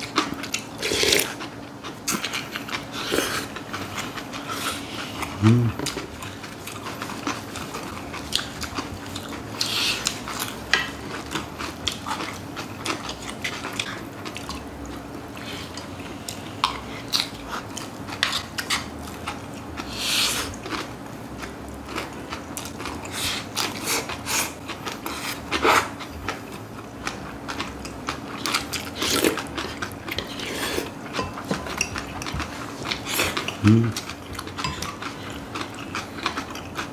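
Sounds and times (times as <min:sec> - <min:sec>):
chewing crunchy food: 0:00.0 - 0:36.9
steady low hum: 0:00.0 - 0:36.9.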